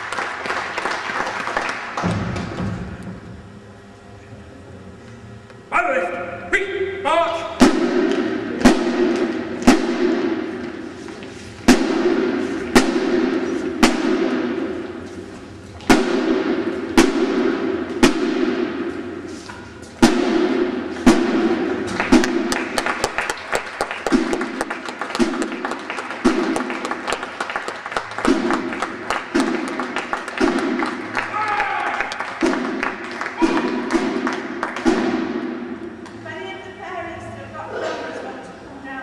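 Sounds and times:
heavy drum beats: 7.6 - 11.0, 11.6 - 15.0, 20.0 - 23.2, 24.0 - 27.2, 28.1 - 36.0.

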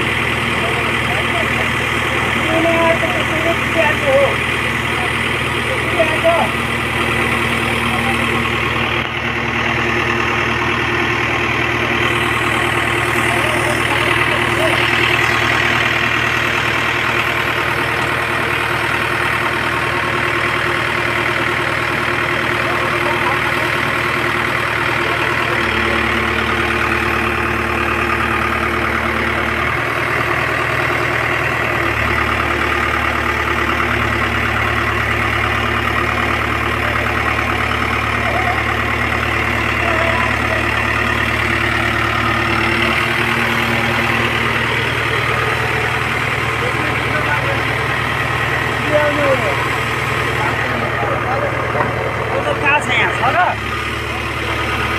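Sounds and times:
diesel engine idling: 0.0 - 54.9.

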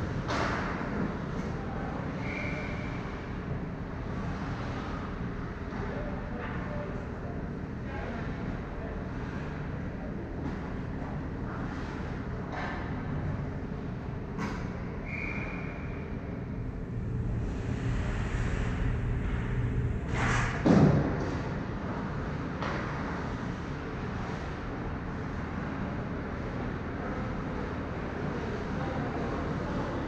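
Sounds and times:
low rumble: 16.0 - 22.6.

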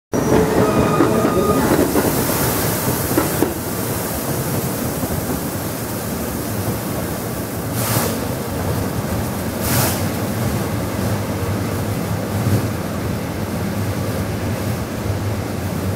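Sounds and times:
short whining train tones: 0.1 - 3.8
train washer spraying water: 0.2 - 8.5.

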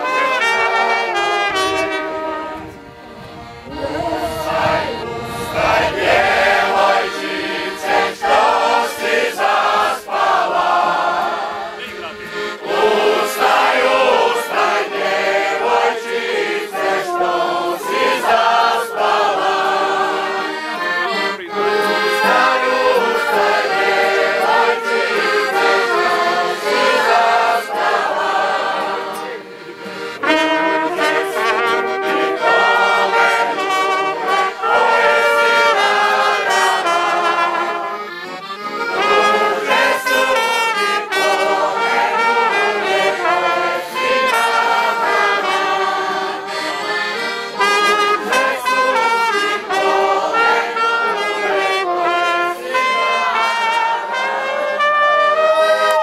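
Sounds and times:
folk music on accordion and brass: 0.0 - 56.0
group of people singing: 3.6 - 38.0, 38.7 - 55.9.

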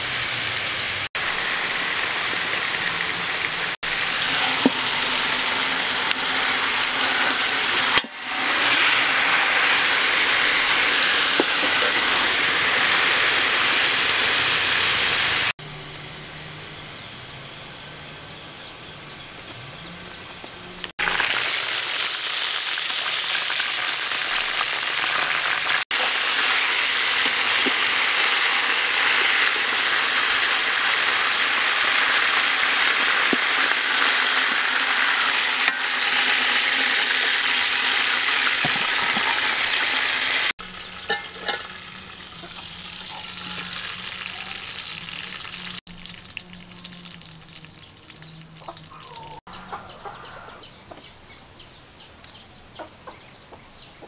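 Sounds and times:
chicken sizzling in hot oil: 0.0 - 15.6, 21.0 - 49.4
outdoor background: 0.0 - 54.0
metal spatula scraping: 41.0 - 44.2.

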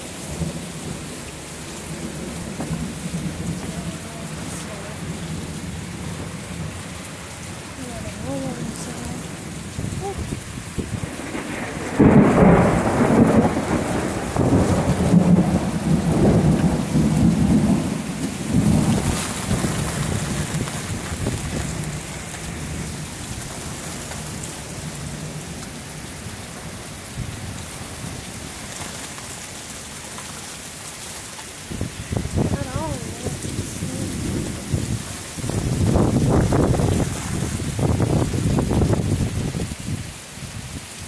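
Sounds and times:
heavy rain hissing: 0.0 - 41.0
rolling thunder clap: 9.2 - 25.8, 33.2 - 39.8.

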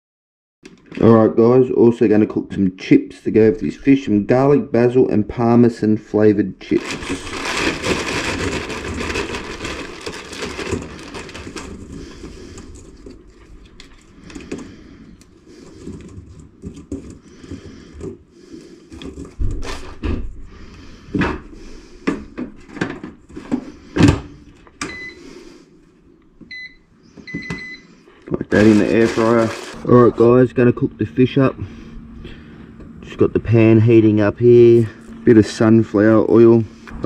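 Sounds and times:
loud rustle: 6.8 - 12.6.

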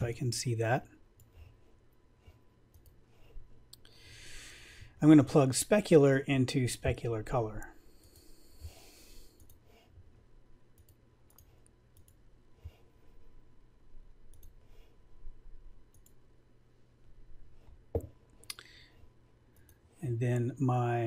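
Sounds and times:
computer mouse clicks: 2.7 - 3.0, 9.4 - 9.7, 10.7 - 12.8, 14.3 - 14.6, 15.9 - 16.2, 19.5 - 19.8.

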